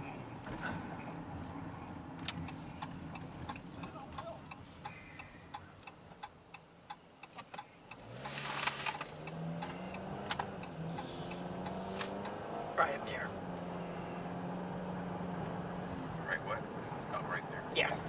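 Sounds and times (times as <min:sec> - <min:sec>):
turn signal ticking: 0:00.4 - 0:18.0
car engine accelerating: 0:07.4 - 0:18.0.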